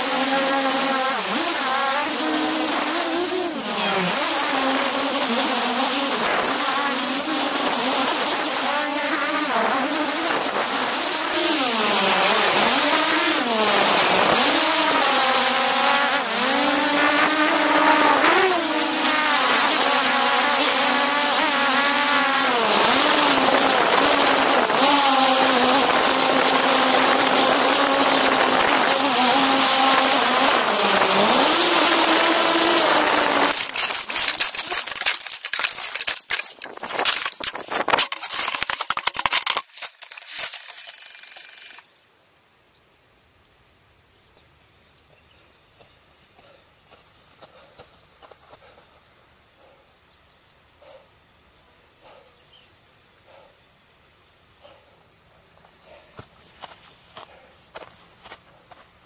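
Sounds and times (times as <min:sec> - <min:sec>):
drone propellers whining: 0:00.0 - 0:41.8.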